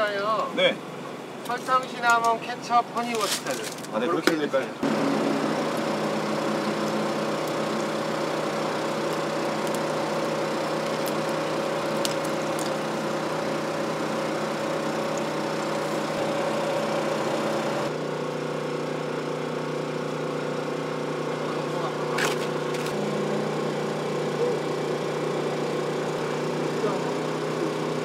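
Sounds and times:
machine hum: 4.8s - 28.0s.

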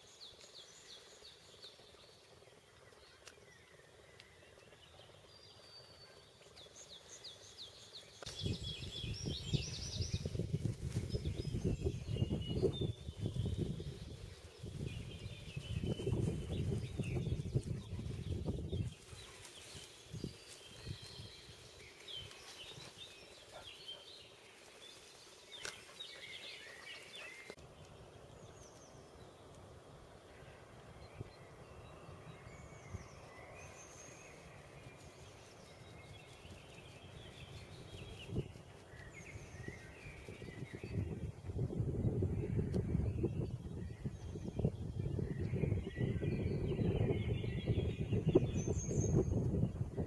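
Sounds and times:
small birds chirping: 0.0s - 50.0s
wind rumble on microphone: 8.3s - 23.1s, 30.4s - 50.0s.

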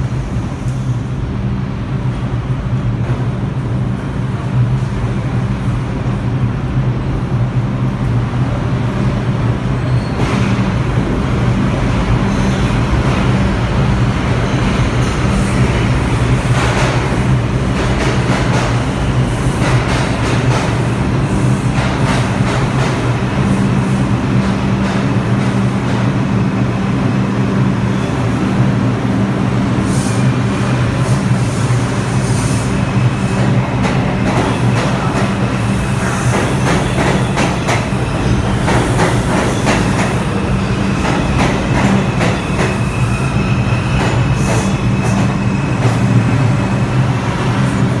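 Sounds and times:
train rumbling into station: 0.0s - 48.0s
faint high squeal: 9.8s - 10.2s.

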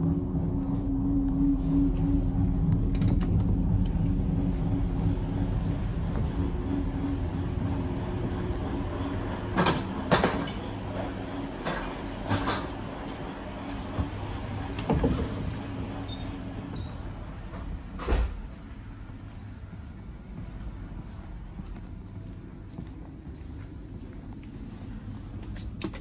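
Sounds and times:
train running hum: 0.0s - 26.0s
sliding door knocks and clatters: 5.9s - 16.7s.

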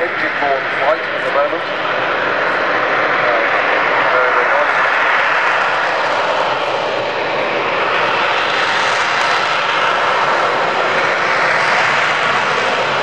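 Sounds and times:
loud steady jet engine noise: 0.0s - 13.0s.

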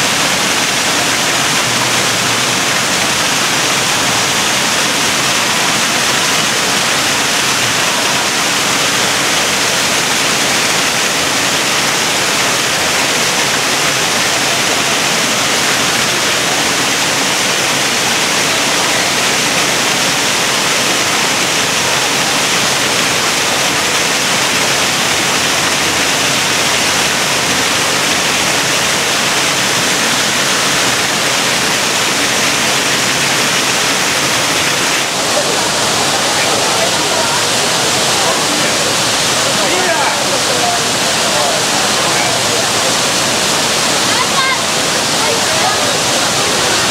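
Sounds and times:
waterfall rushing: 0.0s - 46.9s.

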